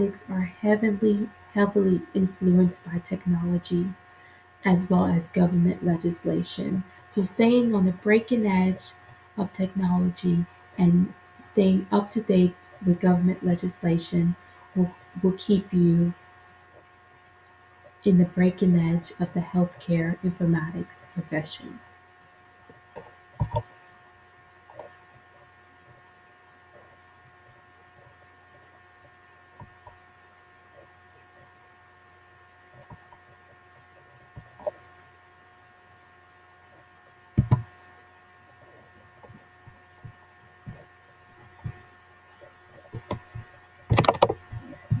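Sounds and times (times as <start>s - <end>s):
steady electrical hum: 0.0s - 45.0s
knocks: 37.4s - 37.7s.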